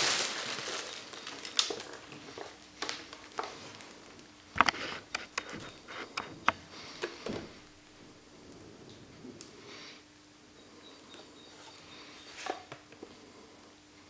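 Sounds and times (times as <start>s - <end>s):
plastic wrap rustling: 0.0s - 9.1s.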